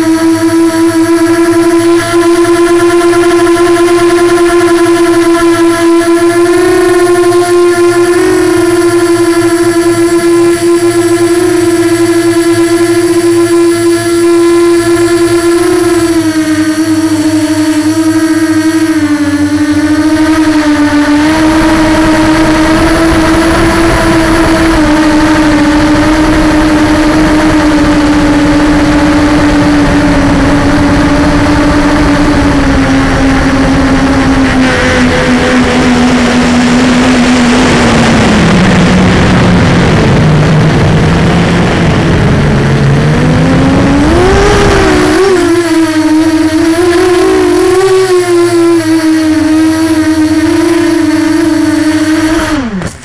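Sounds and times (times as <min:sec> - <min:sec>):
drone motor whining: 0:00.0 - 0:53.0.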